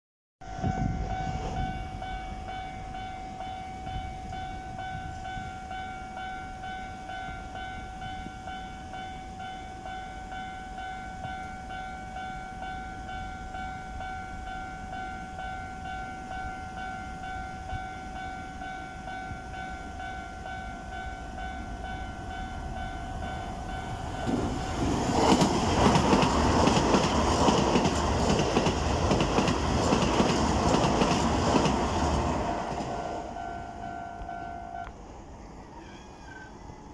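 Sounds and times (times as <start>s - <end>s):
level crossing alarm ringing: 0.4s - 35.0s
train wheels rushing on rails: 15.9s - 36.9s.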